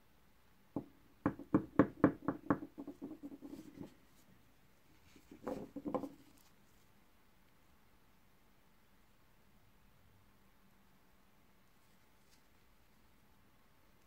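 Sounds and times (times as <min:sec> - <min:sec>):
clay lumps knocking on tabletop: 0:00.8 - 0:03.9, 0:05.3 - 0:06.2.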